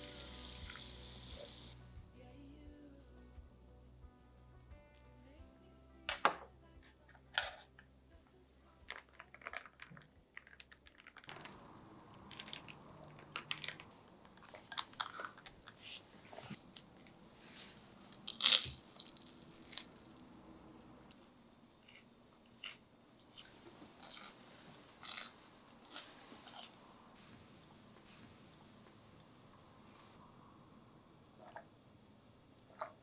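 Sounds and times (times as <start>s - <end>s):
soft background music: 0.0s - 10.5s
food crunching: 12.2s - 15.8s, 18.1s - 20.2s, 21.8s - 24.4s, 25.0s - 26.7s.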